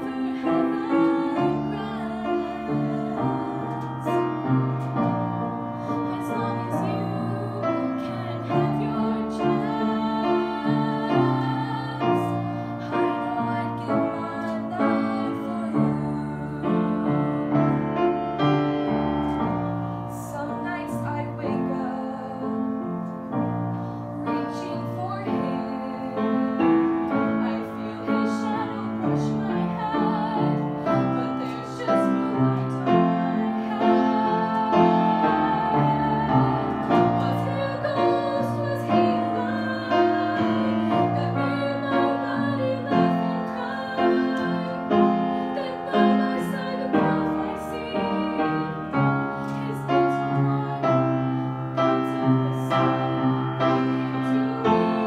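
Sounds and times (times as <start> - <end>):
piano accompaniment: 0.0 - 55.0
girl singing a ballad: 6.0 - 17.2, 20.0 - 22.6, 24.2 - 48.7.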